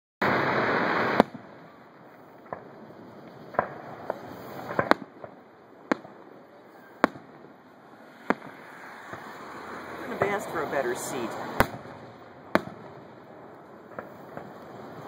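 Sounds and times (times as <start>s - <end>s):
firework hiss: 0.2s - 15.0s
firework shells booming: 0.2s - 15.0s.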